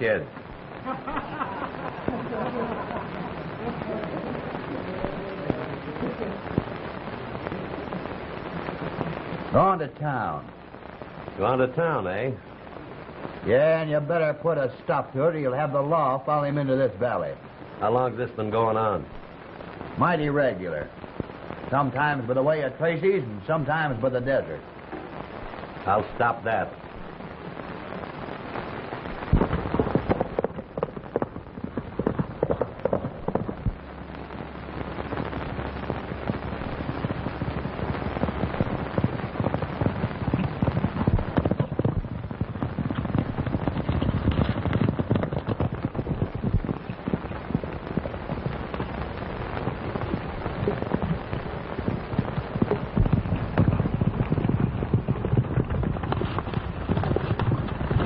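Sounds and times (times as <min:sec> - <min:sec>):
horse hoofbeats galloping: 0:29.3 - 0:33.8, 0:38.6 - 0:49.2, 0:52.2 - 0:58.0.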